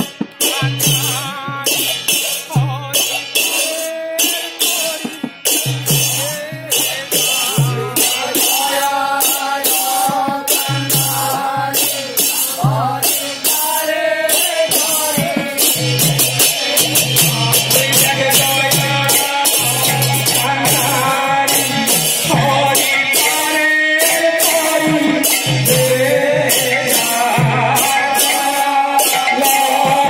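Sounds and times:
low drum beat: 0.0 - 22.9
hand cymbals struck: 0.0 - 30.0
men singing through microphones: 0.0 - 30.0.

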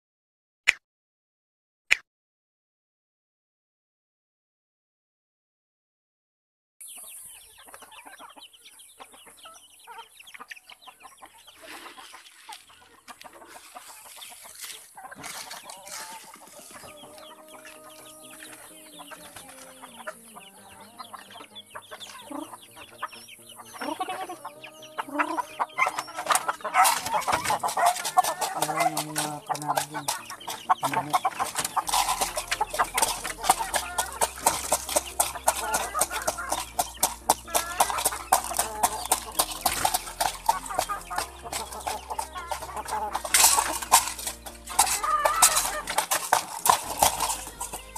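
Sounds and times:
chickens clucking: 6.8 - 47.9
rapid clicking and rustling: 13.6 - 16.8, 26.2 - 47.9.

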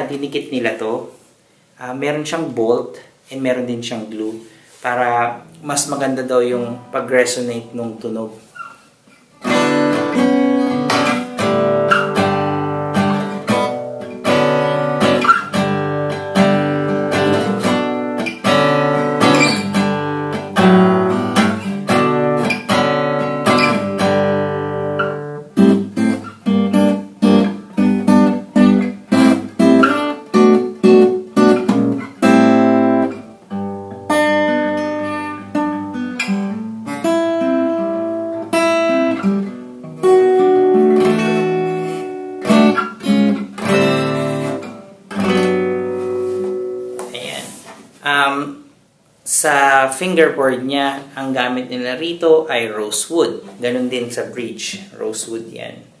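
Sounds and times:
acoustic guitar strumming: 5.0 - 48.0.

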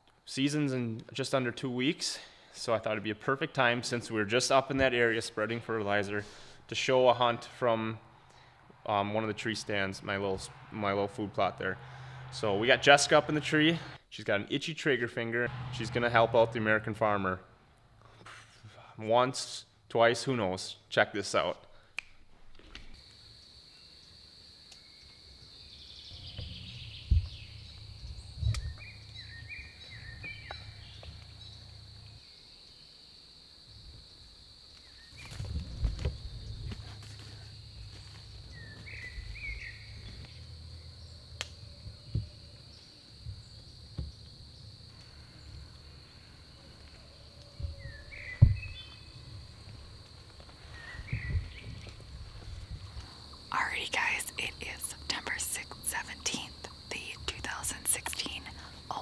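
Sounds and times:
low rumbling: 15.4 - 18.0
bird chirps: 24.8 - 32.6, 38.5 - 41.2.

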